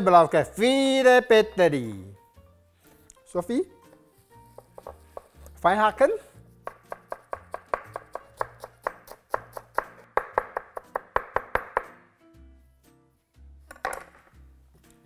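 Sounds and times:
knife chopping on wooden board: 4.5 - 5.4, 6.6 - 12.0.

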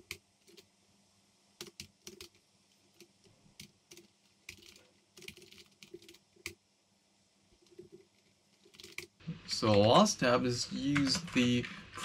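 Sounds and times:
typing on computer keyboard: 1.6 - 6.6, 7.6 - 9.2.

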